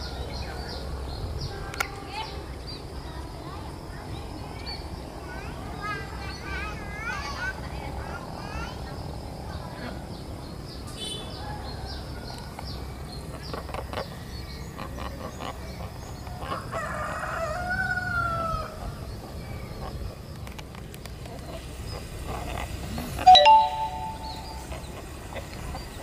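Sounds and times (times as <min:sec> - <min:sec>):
birds chirping: 0:00.0 - 0:17.0, 0:18.5 - 0:26.0
rooster crowing: 0:16.7 - 0:18.8.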